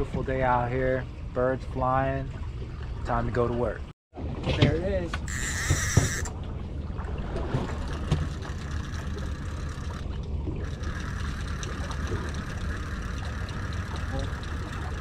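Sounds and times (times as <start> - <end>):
fishing reel drag buzzing: 5.3 - 6.3, 8.3 - 15.0
boat engine idling: 7.7 - 15.0.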